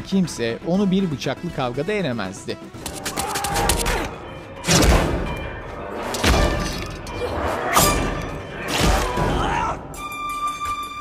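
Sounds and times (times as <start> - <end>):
dramatic score music: 0.0 - 11.0.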